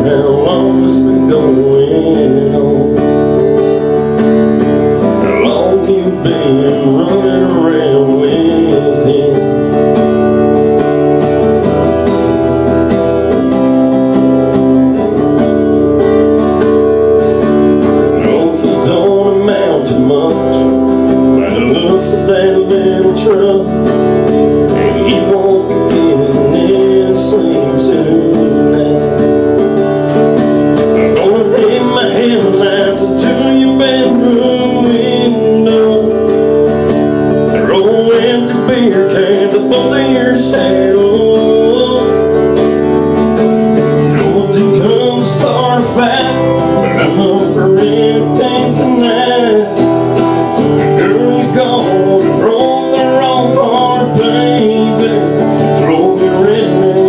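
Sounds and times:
acoustic guitar strumming: 0.0 - 57.0.

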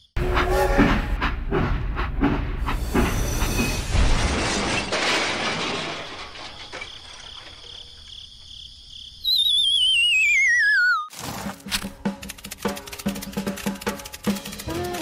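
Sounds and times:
rumbling rattling machine: 12.1 - 15.0.

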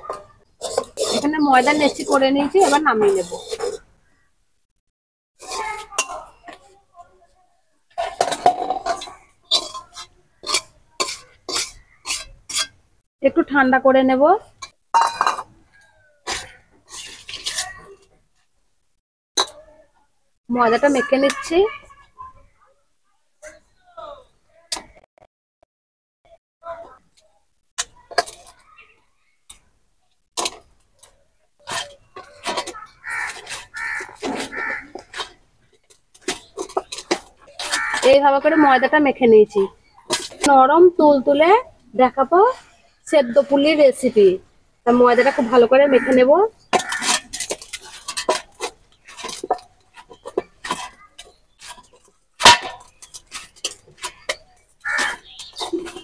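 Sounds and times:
metal bowl clinks and knocks: 8.0 - 12.8, 14.6 - 18.0, 46.7 - 56.0.

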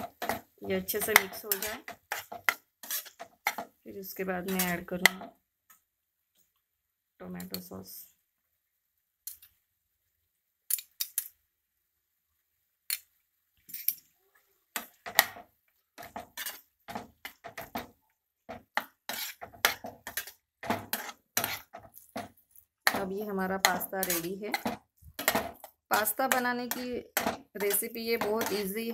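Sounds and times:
metal spatula scraping frying pan: 0.0 - 3.8, 4.4 - 5.2, 14.8 - 28.9.

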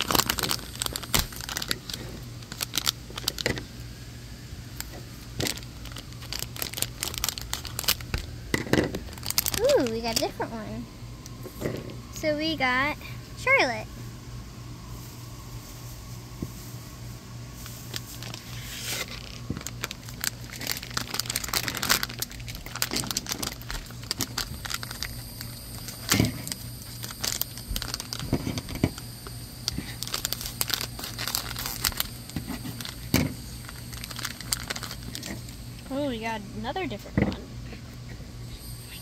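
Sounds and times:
foil wrapper crinkling: 0.0 - 3.7, 4.7 - 10.6, 17.6 - 35.9.

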